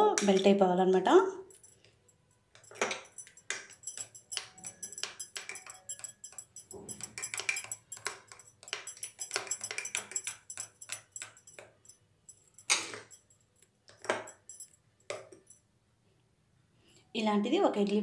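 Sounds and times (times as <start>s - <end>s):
spoon scraping a glass bowl: 2.7s - 11.6s.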